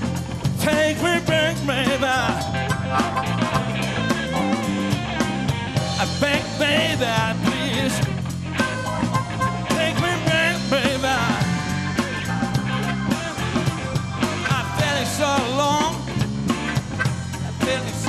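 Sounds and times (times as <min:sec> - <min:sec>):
electric guitar: 0:00.0 - 0:18.0
keyboard: 0:00.0 - 0:18.0
steady drum beat: 0:00.0 - 0:18.0
person singing: 0:05.9 - 0:08.8, 0:09.7 - 0:12.2, 0:14.2 - 0:16.1, 0:17.6 - 0:18.0.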